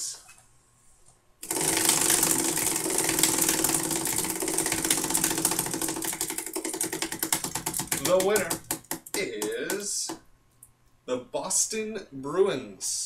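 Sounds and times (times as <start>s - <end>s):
prize wheel clicker ticking: 1.4s - 9.2s.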